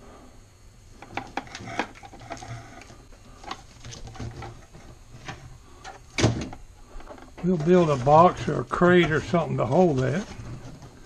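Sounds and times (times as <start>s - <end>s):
plastic parts knocking and clattering: 1.0s - 8.4s.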